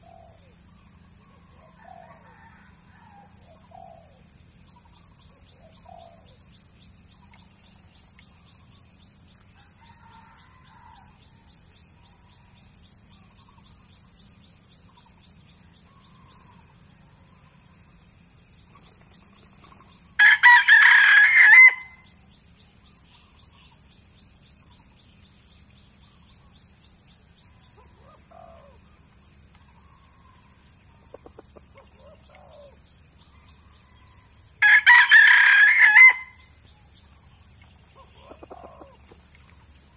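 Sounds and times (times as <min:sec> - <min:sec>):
faint bird chirps: 0:00.0 - 0:17.8, 0:18.6 - 0:20.2, 0:21.9 - 0:34.4
rooster crowing: 0:01.5 - 0:03.8, 0:09.5 - 0:11.5, 0:20.2 - 0:22.1, 0:33.8 - 0:36.5.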